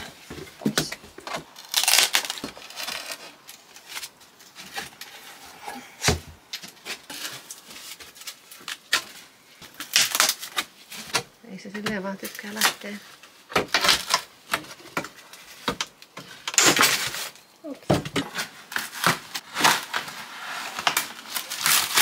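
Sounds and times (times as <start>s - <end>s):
scraping tear: 1.4s - 5.9s, 18.3s - 22.0s.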